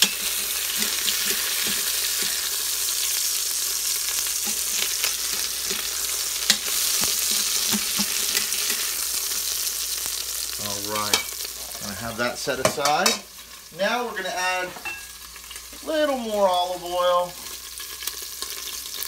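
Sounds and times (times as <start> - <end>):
chicken sizzling in oil: 0.0 - 19.0
metal tongs clicking on pot: 6.4 - 8.8.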